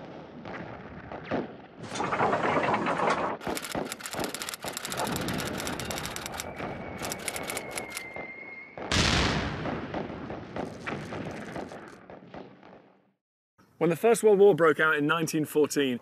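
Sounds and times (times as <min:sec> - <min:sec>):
machine-gun fire: 0:03.4 - 0:07.9, 0:08.9 - 0:12.6
loud explosion: 0:08.1 - 0:12.8.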